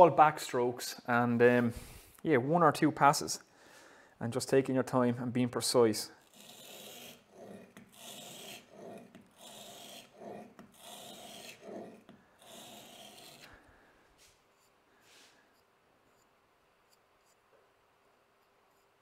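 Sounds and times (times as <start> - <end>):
blade scraping on abrasive film: 6.2 - 13.6.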